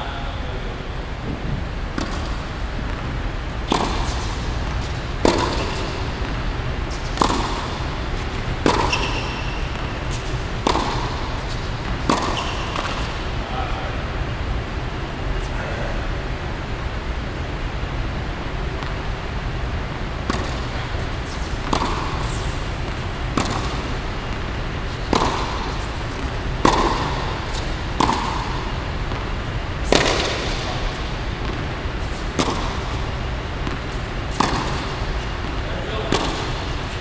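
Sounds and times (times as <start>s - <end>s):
tennis ball hits and bounces: 2.0s - 3.0s, 3.7s - 13.2s, 18.8s - 19.0s, 20.2s - 36.8s.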